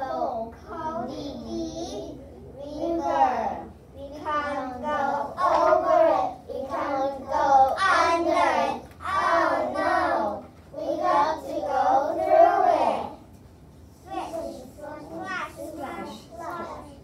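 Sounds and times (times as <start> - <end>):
children chanting: 4.4 - 13.2.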